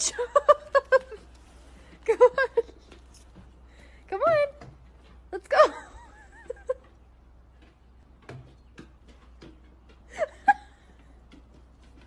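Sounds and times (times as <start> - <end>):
paws knocking on wooden stairs: 7.6 - 12.0.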